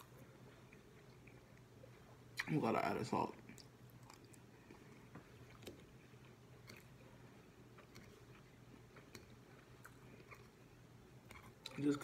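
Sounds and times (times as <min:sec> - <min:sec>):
chewing food: 0:00.0 - 0:02.5, 0:03.4 - 0:12.0
low steady hum: 0:00.0 - 0:12.0.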